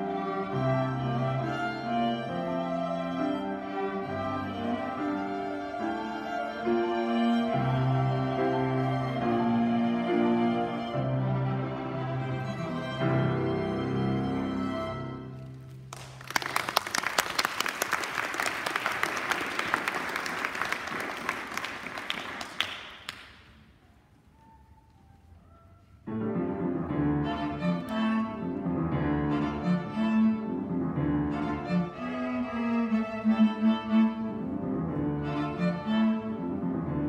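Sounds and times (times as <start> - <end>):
string quartet playing: 0.0 - 15.6, 26.6 - 37.0
audience applauding: 15.9 - 23.6.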